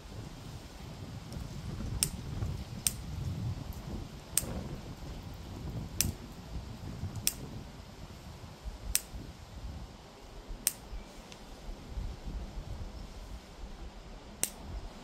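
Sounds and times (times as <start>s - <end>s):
wind rumbling on microphone: 0.0s - 15.0s
lighter clicking: 14.4s - 14.6s.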